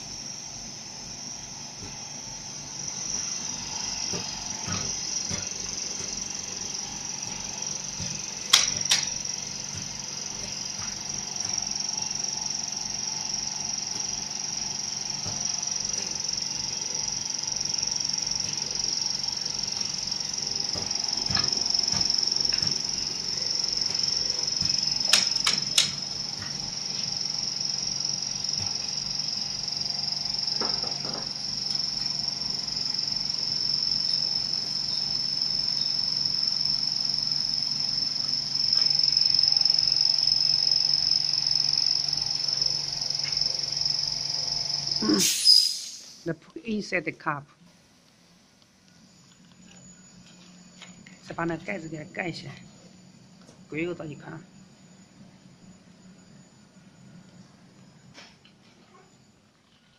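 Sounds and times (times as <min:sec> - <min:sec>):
high-pitched whine: 0:00.0 - 0:46.3
sharp clicks of machine parts: 0:25.0 - 0:26.0.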